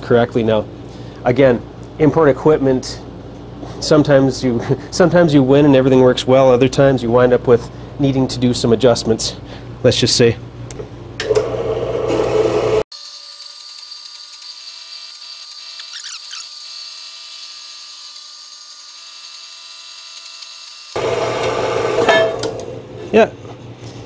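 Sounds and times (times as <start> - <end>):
bandsaw cutting steel tube: 12.9 - 22.6.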